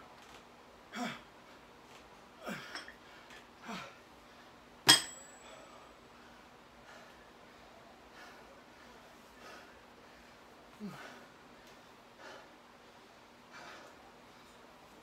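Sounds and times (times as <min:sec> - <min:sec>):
dumbbells clinking on rubber mat: 0:04.9 - 0:05.6
metallic ring: 0:04.9 - 0:05.6.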